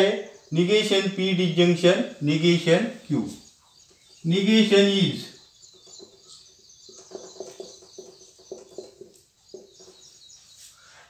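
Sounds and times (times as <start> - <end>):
marker squeaking on whiteboard: 5.7 - 10.7.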